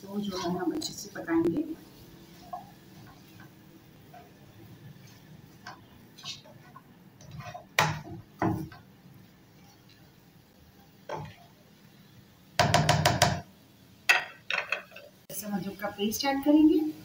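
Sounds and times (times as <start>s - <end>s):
spatula scraping frying pan: 1.9s - 10.1s, 11.0s - 11.6s.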